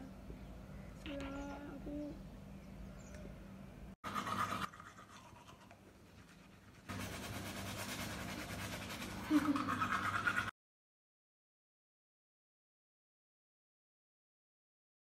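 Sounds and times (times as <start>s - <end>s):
toothbrush scrubbing teeth: 4.0s - 10.5s.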